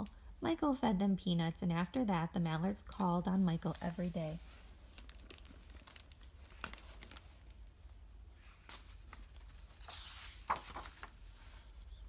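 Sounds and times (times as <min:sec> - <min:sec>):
book pages rustling: 0:03.7 - 0:12.0.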